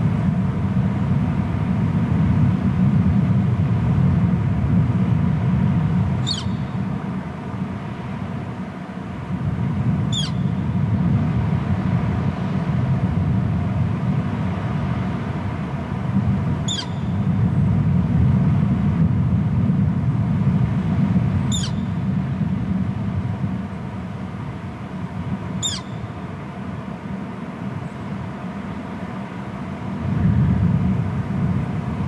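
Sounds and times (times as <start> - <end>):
wind rumbling on microphone: 0.0 - 32.0
high-pitched bird calls: 6.2 - 6.7, 10.1 - 10.5, 16.7 - 17.1, 21.5 - 21.9, 25.6 - 26.0.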